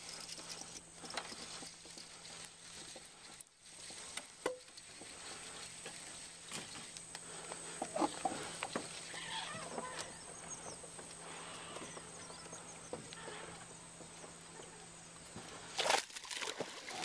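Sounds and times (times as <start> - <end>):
birds calling: 5.0 - 15.7
small water splashes: 15.7 - 17.0.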